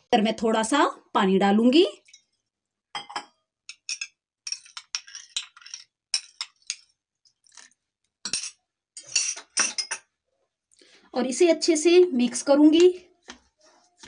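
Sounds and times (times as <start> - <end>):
spoon scraping glass bowl: 3.1 - 10.0.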